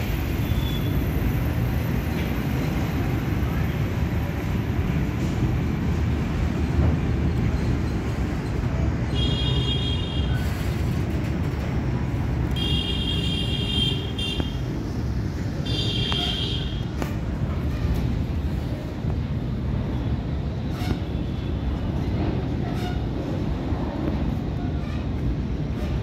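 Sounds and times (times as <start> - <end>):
train wheels rumbling on rails: 0.0 - 26.0
high wheel squeal: 0.2 - 1.3.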